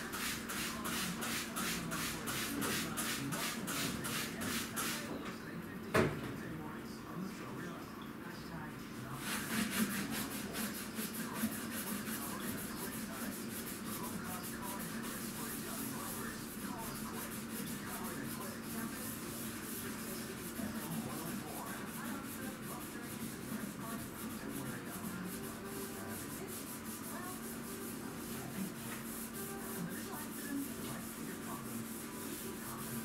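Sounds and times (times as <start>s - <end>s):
scrubbing at sink: 0.0s - 5.1s, 9.2s - 33.0s.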